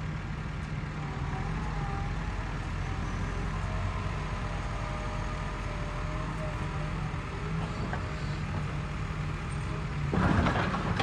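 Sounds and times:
excavator diesel engine running: 0:00.0 - 0:11.0
excavator grapple against wall: 0:10.1 - 0:11.0.

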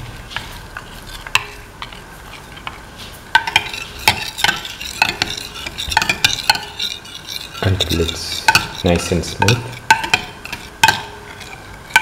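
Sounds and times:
metal spoon beating eggs in bowl: 0:00.3 - 0:12.0.

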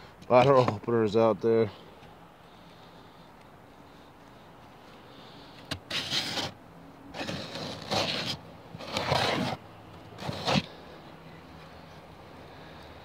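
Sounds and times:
awl grinding into wood: 0:05.8 - 0:06.6, 0:07.2 - 0:09.6.

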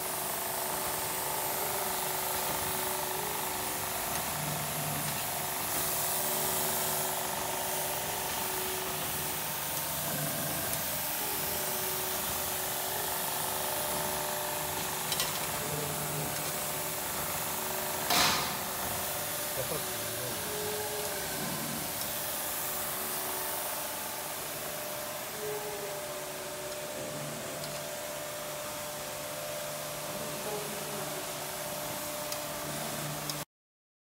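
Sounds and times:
machine hum: 0:00.0 - 0:33.4
water spray hissing: 0:02.4 - 0:26.7.

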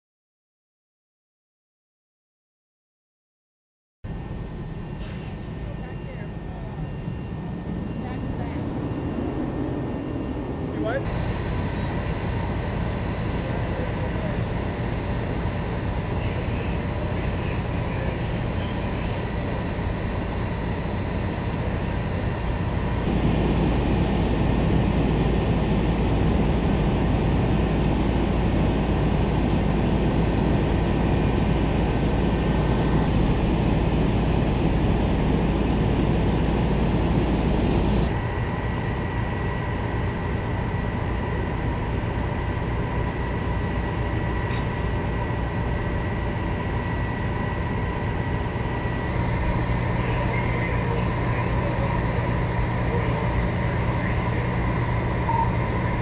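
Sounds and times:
diesel engines droning: 0:04.1 - 0:56.0
constant high tone: 0:46.0 - 0:56.0.

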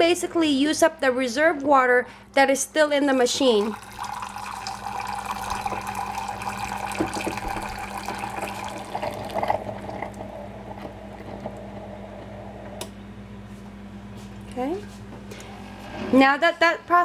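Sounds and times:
coffee maker low hum: 0:02.7 - 0:17.0
liquid pouring into ceramic cup: 0:03.6 - 0:10.4.

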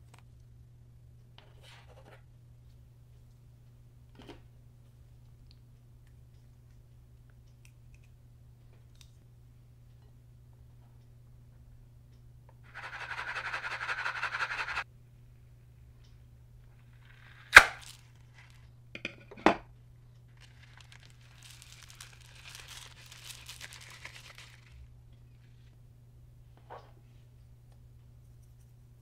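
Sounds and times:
balloon popping snap: 0:17.5 - 0:18.0
sprinkles pattering onto slime: 0:20.3 - 0:24.8.

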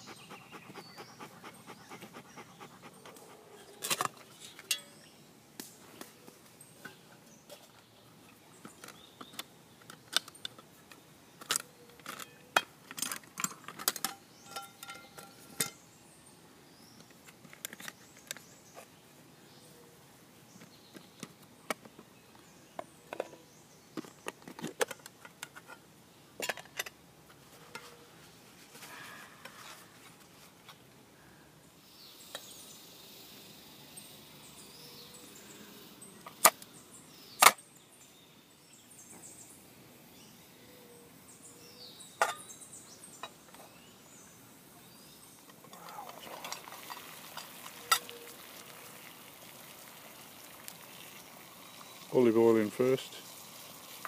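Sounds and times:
metal pots clinking and clattering: 0:03.8 - 0:05.0, 0:12.0 - 0:15.8, 0:26.4 - 0:27.0, 0:42.2 - 0:42.5, 0:45.7 - 0:48.2.

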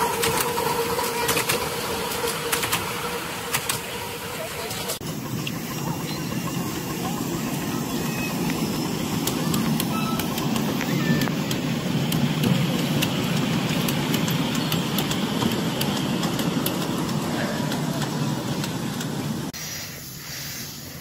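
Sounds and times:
wheels clicking on track: 0:00.0 - 0:19.6
miniature steam train rumbling: 0:00.0 - 0:21.0.

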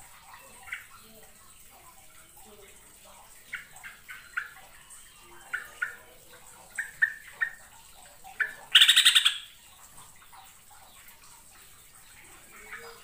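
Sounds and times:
bird fast chatter: 0:03.4 - 0:09.5.

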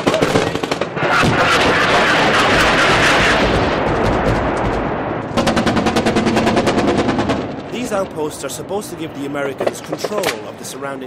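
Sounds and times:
overlapping gunshots: 0:00.0 - 0:08.3
machine gun firing rapidly: 0:05.3 - 0:07.5.

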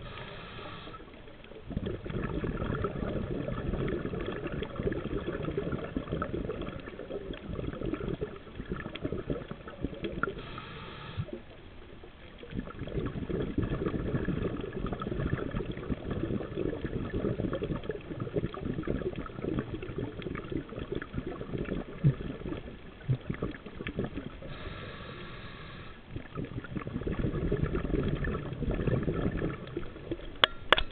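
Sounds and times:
regulator inhalation hiss: 0:00.0 - 0:01.1, 0:10.4 - 0:11.4, 0:24.5 - 0:26.0
exhaled bubbles gurgling: 0:00.0 - 0:30.9.

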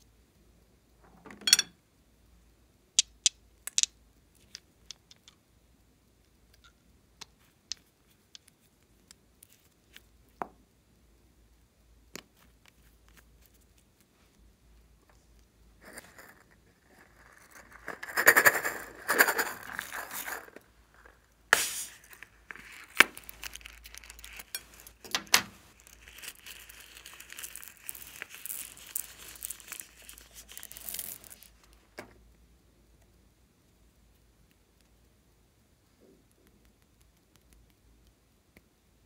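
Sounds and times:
beads pattering onto slime: 0:15.8 - 0:31.9.

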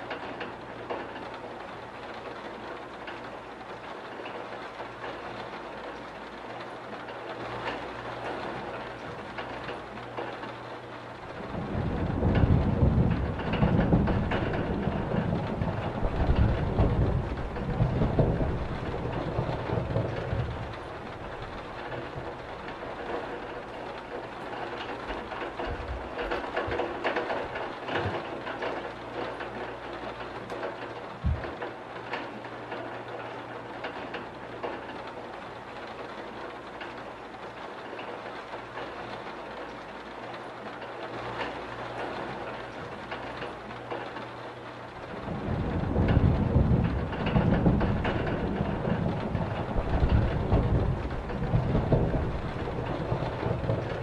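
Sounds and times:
rain on window glass: 0:00.0 - 0:54.0
low rumbles: 0:11.0 - 0:32.1, 0:44.9 - 0:54.0.

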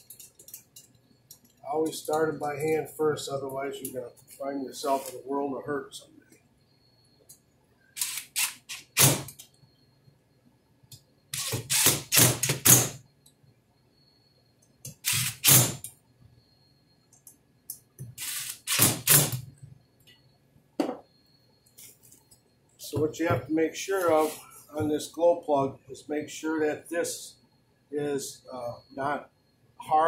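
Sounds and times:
cordless drill motor whirring: 0:08.0 - 0:09.0, 0:11.3 - 0:12.6, 0:14.9 - 0:15.6, 0:18.2 - 0:19.2.

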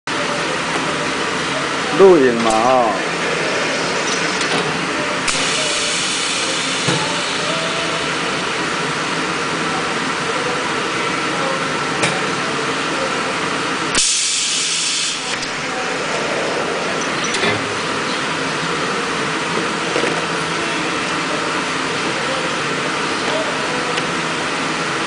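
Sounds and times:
machine running: 0:00.2 - 0:09.9, 0:13.5 - 0:21.5
compressed air hissing: 0:03.0 - 0:08.0, 0:14.0 - 0:19.1
burst of air exhaust: 0:03.0 - 0:08.6, 0:13.9 - 0:19.5.

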